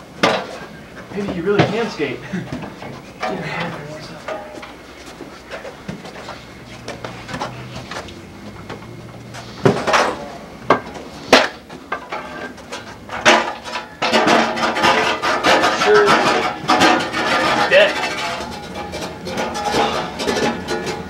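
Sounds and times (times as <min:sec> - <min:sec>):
clattering knocks: 0:00.2 - 0:04.8, 0:09.6 - 0:21.0.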